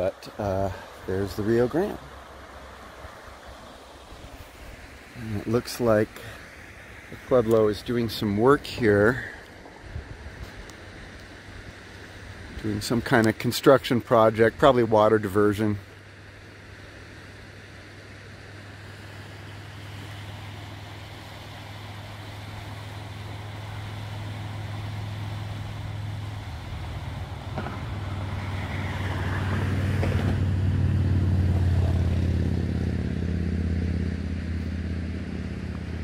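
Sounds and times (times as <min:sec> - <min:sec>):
engine running with low hum: 0:15.4 - 0:36.0.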